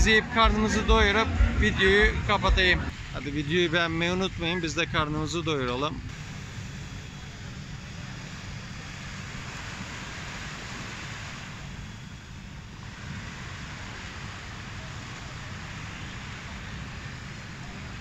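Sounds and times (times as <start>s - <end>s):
waves washing onto beach: 8.1s - 18.0s.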